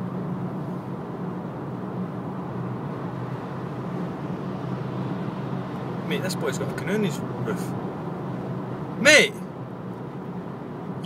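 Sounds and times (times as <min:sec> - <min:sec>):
road noise inside car: 0:00.0 - 0:11.0.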